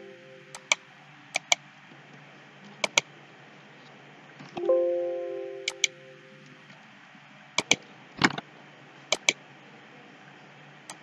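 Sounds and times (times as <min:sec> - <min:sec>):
computer chime ringing: 0:00.0 - 0:00.7, 0:04.6 - 0:06.5
computer mouse clicking: 0:00.5 - 0:00.8, 0:01.4 - 0:01.6, 0:02.8 - 0:03.0, 0:05.6 - 0:06.0, 0:07.6 - 0:08.4, 0:09.1 - 0:09.4.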